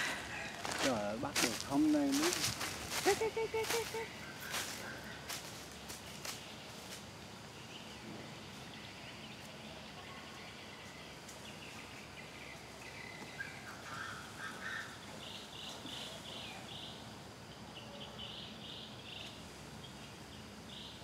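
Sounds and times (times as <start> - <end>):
faint bird calls: 0.0 - 7.0, 7.6 - 21.0.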